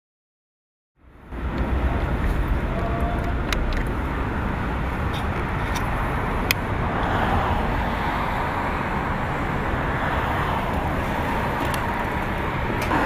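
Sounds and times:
street traffic: 0:01.0 - 0:13.0.

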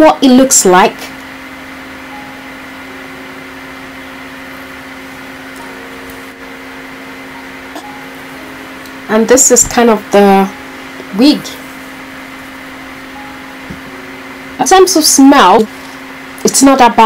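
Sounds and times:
low electrical hum: 0:00.0 - 0:17.0.

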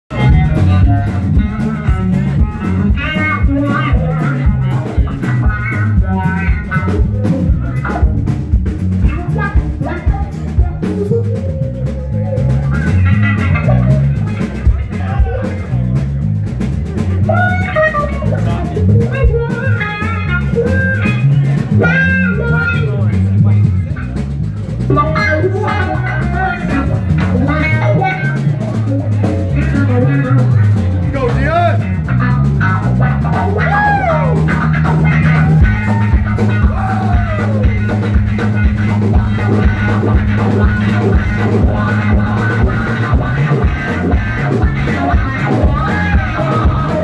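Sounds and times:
drum kit: 0:00.1 - 0:47.0
electric guitar lead lines: 0:00.1 - 0:47.0.

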